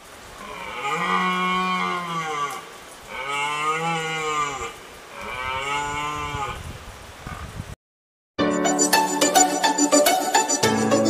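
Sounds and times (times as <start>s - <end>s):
cow mooing: 0.4s - 6.6s.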